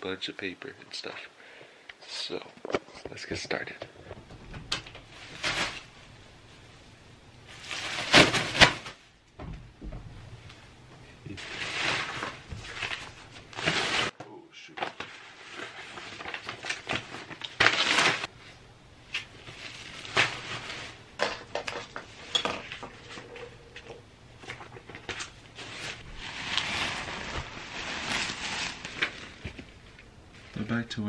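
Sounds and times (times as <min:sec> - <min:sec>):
plastic bag rustling: 0:04.6 - 0:06.8, 0:07.4 - 0:09.1, 0:11.3 - 0:31.0.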